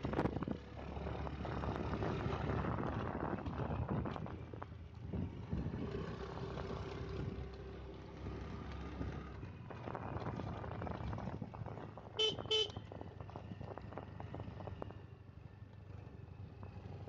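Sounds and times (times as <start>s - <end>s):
horn beeps: 12.2s - 12.8s.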